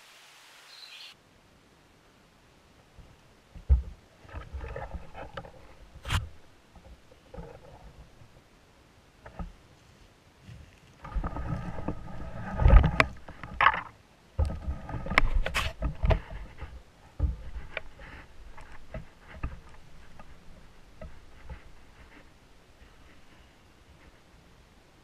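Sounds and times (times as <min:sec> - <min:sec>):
clothing and gear rustling: 0:14.6 - 0:24.3.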